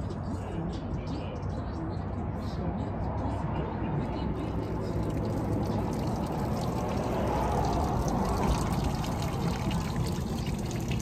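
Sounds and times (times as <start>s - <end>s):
urine stream splashing: 5.1s - 11.0s.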